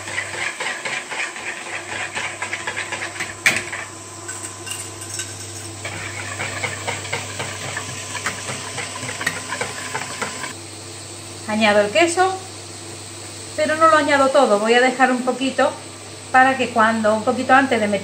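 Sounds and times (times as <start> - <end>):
whisk knocking bowl: 0.0 - 3.9, 5.8 - 10.5
vegetables sizzling in frying pan: 0.0 - 18.0.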